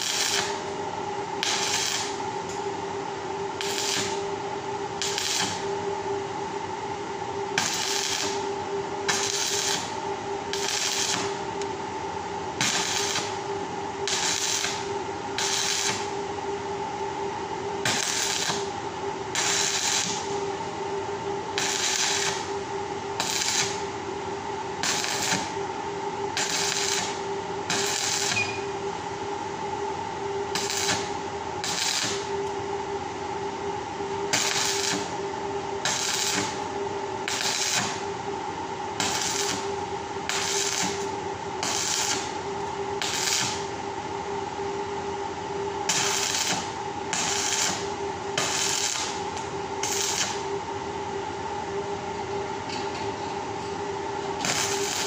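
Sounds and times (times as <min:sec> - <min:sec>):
arc welding crackle: 0:00.0 - 0:00.8, 0:01.4 - 0:02.7, 0:03.5 - 0:05.9, 0:07.5 - 0:11.8, 0:12.4 - 0:17.2, 0:17.8 - 0:20.8, 0:21.4 - 0:24.0, 0:24.7 - 0:29.0, 0:30.4 - 0:32.6, 0:34.2 - 0:38.3, 0:38.9 - 0:44.1, 0:45.7 - 0:50.6, 0:54.3 - 0:55.0
welder hum: 0:00.0 - 0:55.0.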